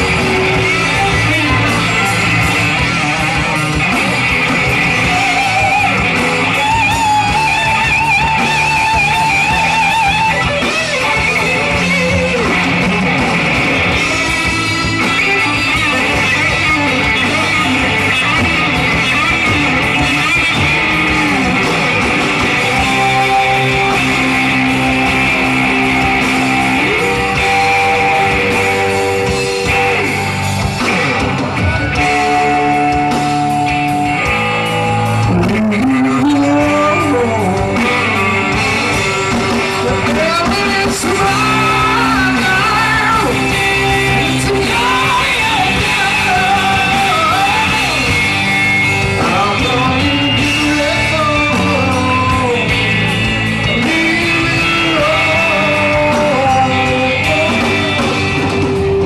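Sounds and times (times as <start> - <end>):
rock band electric guitars: 0.0 - 59.0
man singing: 22.4 - 30.3, 35.1 - 48.5, 49.1 - 59.0.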